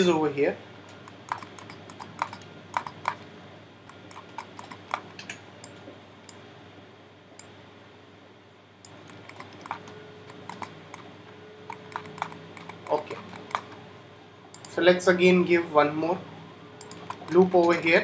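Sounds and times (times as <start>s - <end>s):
mouse clicks: 11.7s - 13.8s, 14.5s - 14.7s, 16.8s - 17.4s.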